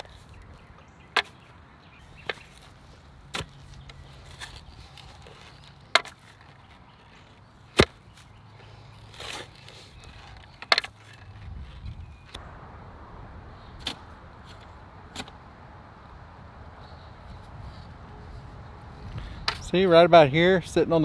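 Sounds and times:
post hole digger chopping ground: 2.2 - 11.6, 13.8 - 15.4.

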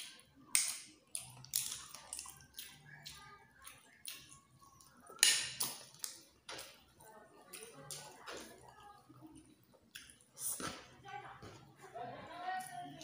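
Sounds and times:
person slurping and smacking: 0.6 - 6.9, 9.4 - 10.9.

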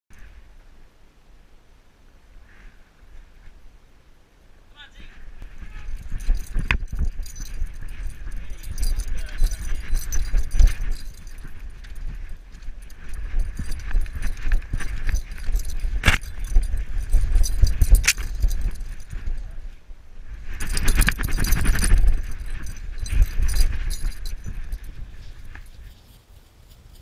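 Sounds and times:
low rumbling of movement: 5.2 - 25.8
metal tags jangling on dog collar: 5.4 - 19.6, 20.5 - 27.0.

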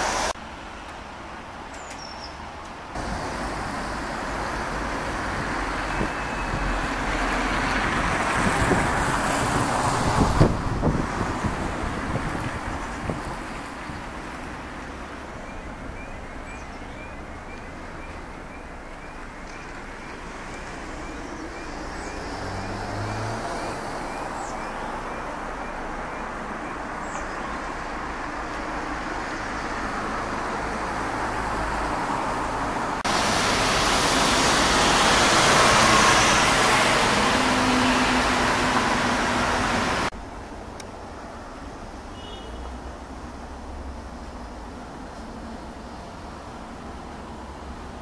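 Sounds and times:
road traffic noise: 0.0 - 48.0.

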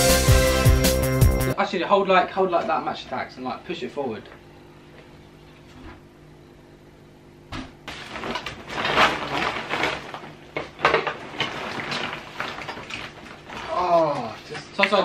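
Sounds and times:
plastic bag rustling: 7.9 - 15.0
plastic toys clattering: 7.9 - 15.0.

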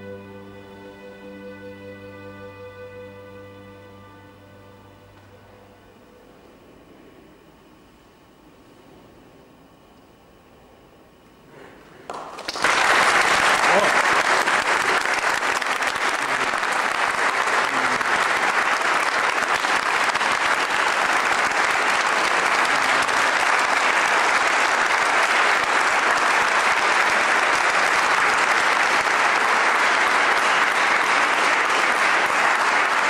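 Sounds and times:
audience applauding: 12.1 - 33.0.

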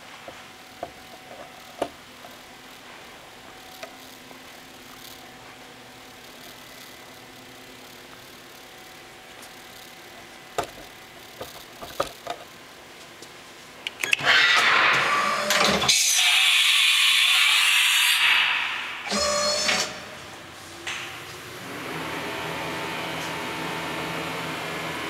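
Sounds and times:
rising motor whine: 21.6 - 25.0.

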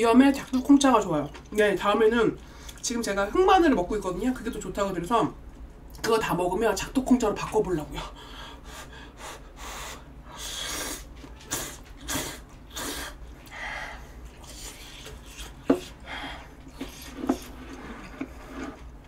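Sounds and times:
person slurping noodles: 10.4 - 13.2, 14.0 - 18.9.

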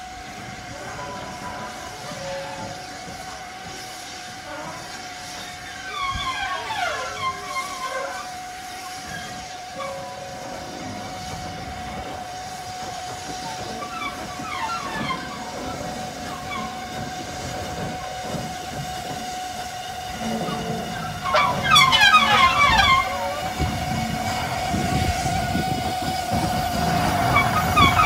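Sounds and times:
steam locomotive rumble: 0.0 - 28.0
steady high tone: 14.8 - 28.0.

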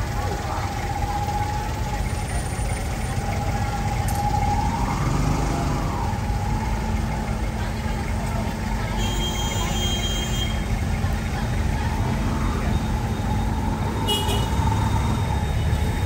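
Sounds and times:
vehicle engines idling: 0.0 - 16.0
engine note rising and falling: 4.2 - 6.8.

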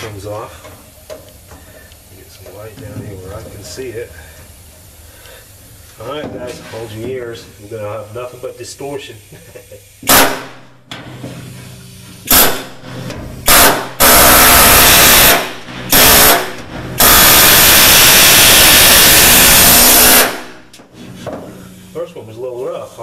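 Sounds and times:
air chisel hammering steel: 12.2 - 20.7.

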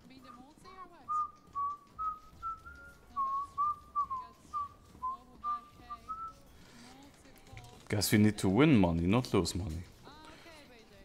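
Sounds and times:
person whistling a tune: 1.1 - 6.5.

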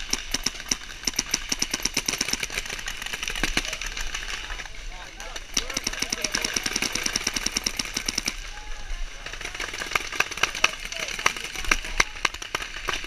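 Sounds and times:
paintball marker firing: 5.5 - 8.4.

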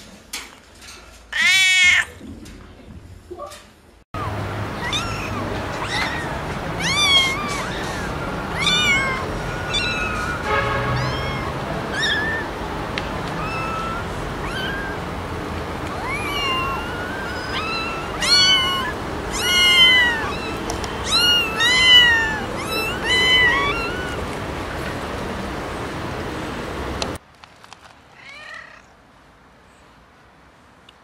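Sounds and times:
kittens meowing: 4.2 - 15.2, 15.8 - 24.4.

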